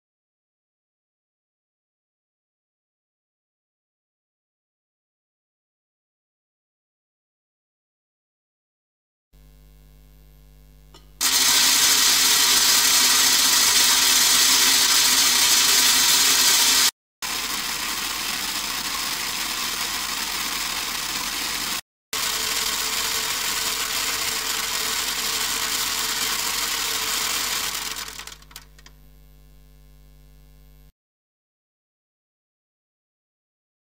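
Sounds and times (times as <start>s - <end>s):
water spray on metal sheet: 11.2s - 16.9s.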